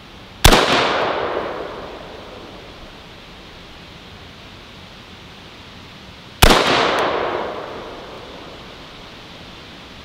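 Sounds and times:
rifle shot with echo: 0.4s - 2.7s, 6.4s - 8.6s.

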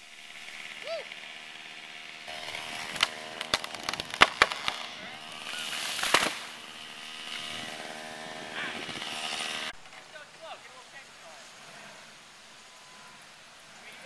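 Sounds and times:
wood cracking and splintering: 2.3s - 5.0s, 5.7s - 6.5s.

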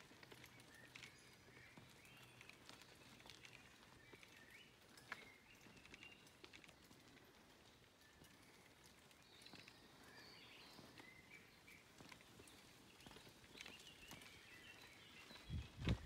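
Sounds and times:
bicycle tyres ticking on dirt: 0.0s - 16.0s
faint birdsong chirping: 0.0s - 16.0s
low rumble on microphone: 15.4s - 16.0s.

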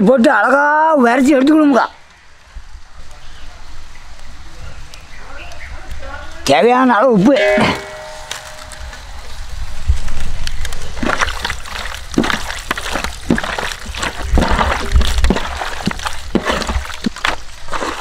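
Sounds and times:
hands squelching fish in a bowl: 10.9s - 18.0s.

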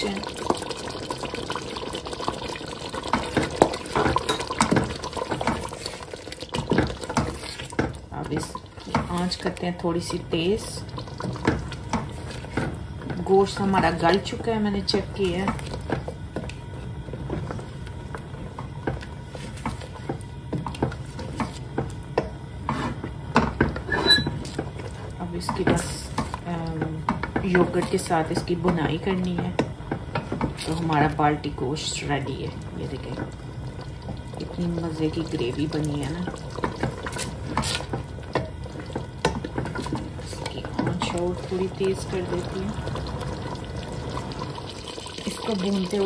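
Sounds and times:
low steady hum: 0.0s - 46.0s
spoon stirring thick gravy: 0.3s - 31.2s, 32.6s - 46.0s
spoon scraping a metal pot: 23.8s - 24.5s.

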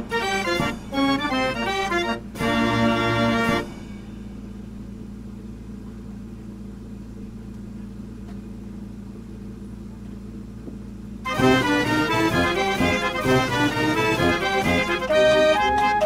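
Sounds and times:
music: 0.0s - 4.9s, 11.2s - 16.0s
steady low hum: 0.0s - 16.0s.

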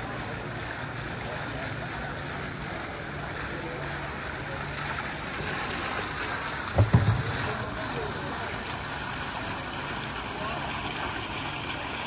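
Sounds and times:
background hubbub: 0.0s - 12.0s
faint indistinct voices: 0.0s - 12.0s
low thumps: 6.8s - 7.7s.

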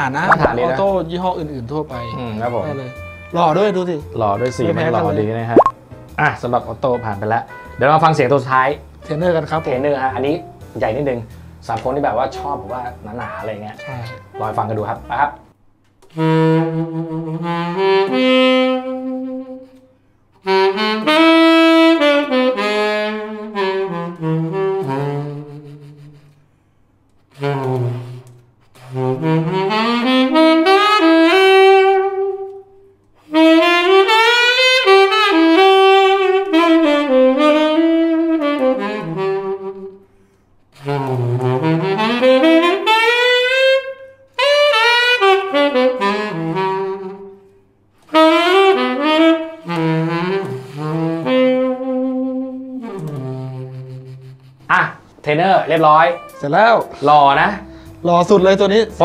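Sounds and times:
solo tenor saxophone melody: 1.9s - 5.4s, 13.2s - 14.7s, 16.1s - 26.4s, 27.3s - 40.1s, 40.7s - 54.7s, 55.6s - 59.0s
player breathing: 57.6s - 58.0s.

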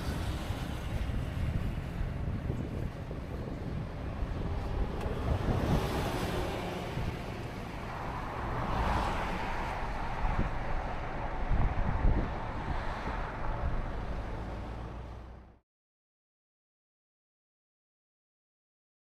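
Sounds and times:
wind on microphone: 0.0s - 15.0s
road rumble: 0.0s - 15.6s.

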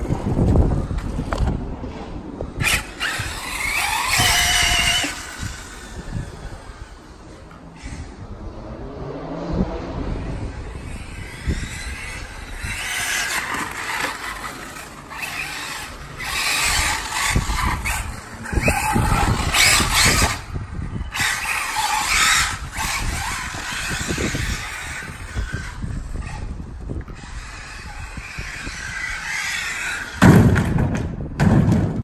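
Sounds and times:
electric motor whine: 2.6s - 8.2s, 10.4s - 30.2s.

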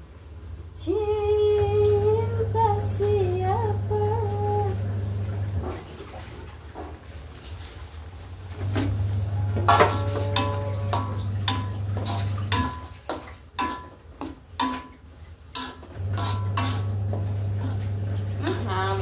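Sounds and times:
steady low hum: 8.5s - 13.0s
metal spatula scraping a wok: 9.8s - 14.0s, 14.6s - 17.7s.

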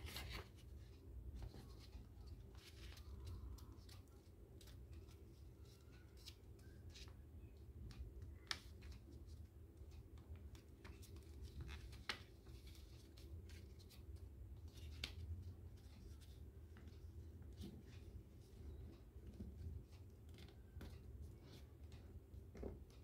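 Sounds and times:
paper crinkling while folded: 0.0s - 7.2s.

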